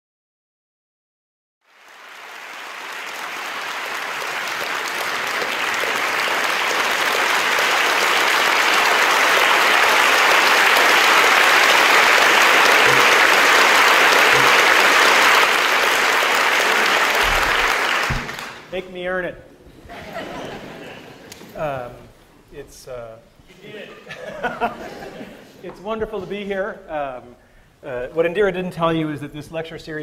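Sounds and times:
audience applauding: 1.6 - 18.7.

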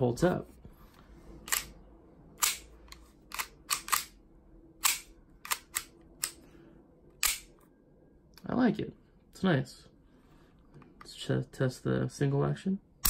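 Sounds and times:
pistol parts clicking: 1.4 - 4.2, 4.8 - 6.4, 7.1 - 7.6.

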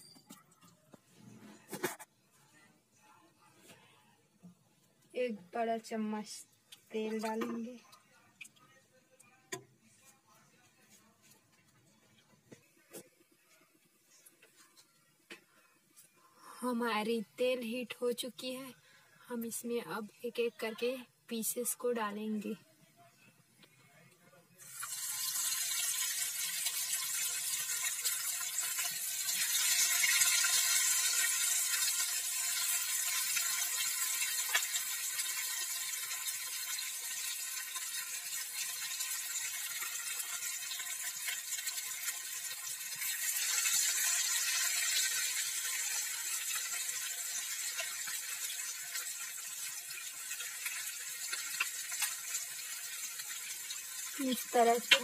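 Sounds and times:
fish sizzling in hot oil: 24.6 - 55.0.

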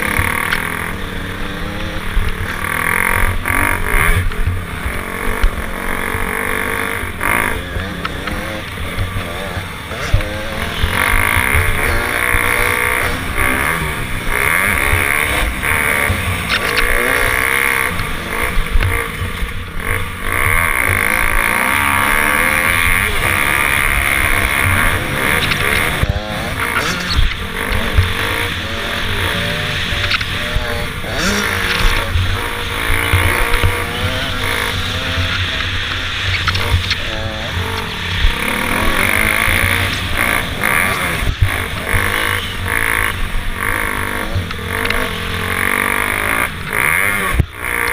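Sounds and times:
dirt bike engine revving: 0.0 - 47.9.

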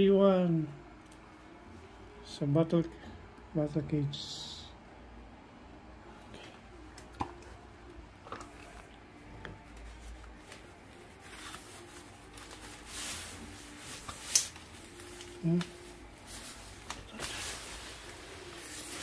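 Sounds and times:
bag rustling: 10.0 - 19.0.

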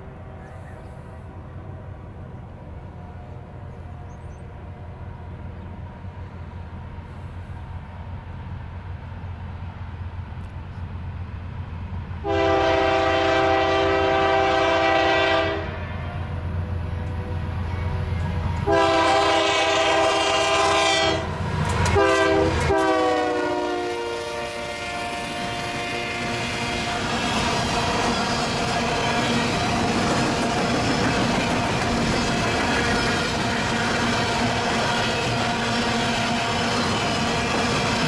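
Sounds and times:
locomotive air horn blasts: 12.2 - 16.3, 18.6 - 27.2
hopper cars rolling on rails: 16.2 - 22.9, 24.8 - 38.0.

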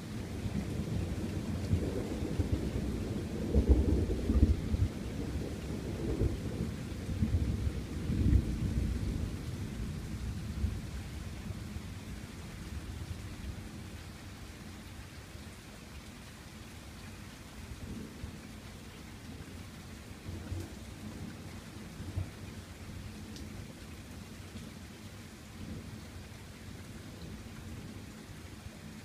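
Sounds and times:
thunder rumbling: 0.7 - 9.9.

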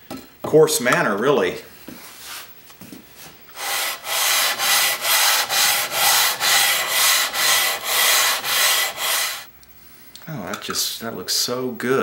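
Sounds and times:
metal scraping on abrasive paper: 3.6 - 9.5.

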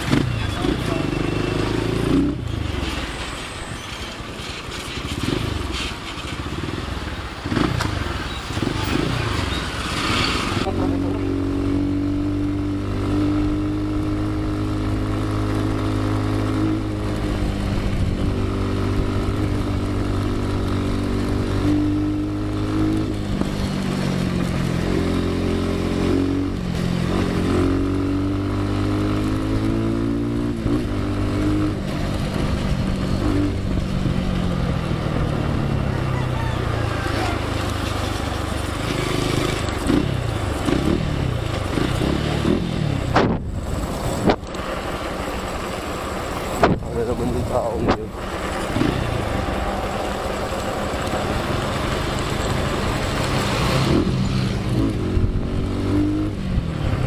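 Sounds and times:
motorcycle engine revving: 0.0 - 2.9, 5.0 - 57.0
rushing noise: 42.8 - 55.7.

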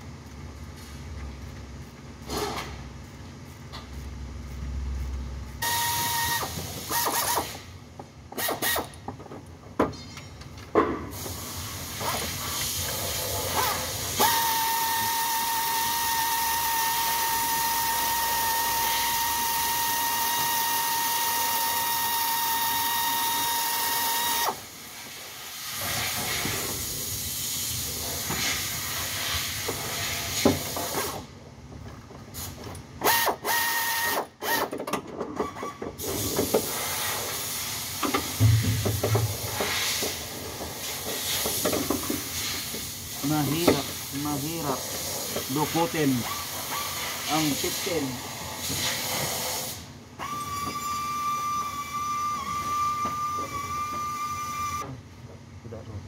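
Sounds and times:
hand tools clicking and ratcheting: 8.3 - 9.2.

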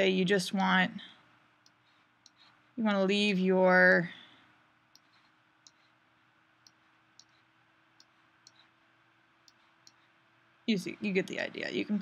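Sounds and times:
faint steady hum: 0.0 - 12.0
computer mouse clicks: 4.9 - 5.9, 6.6 - 7.4, 8.0 - 8.7, 9.4 - 10.0.

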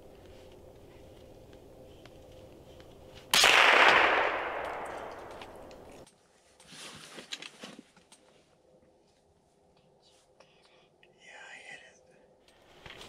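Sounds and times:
rifle shot with echo: 3.3 - 6.0
rustling: 4.7 - 10.4.

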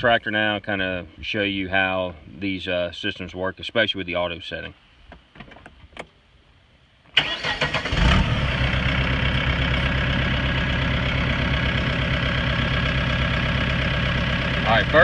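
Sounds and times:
starter motor cranking: 7.2 - 8.4
diesel engine idling: 7.2 - 15.0.

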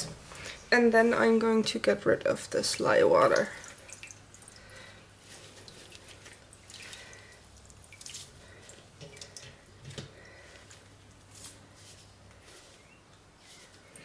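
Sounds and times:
water dripping into pot: 3.1 - 4.9, 5.6 - 10.3.

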